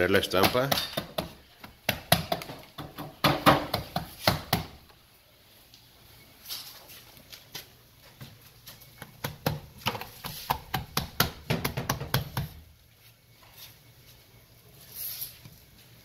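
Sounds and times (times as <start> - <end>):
hands patting stamp on wet cement: 9.0 - 12.6.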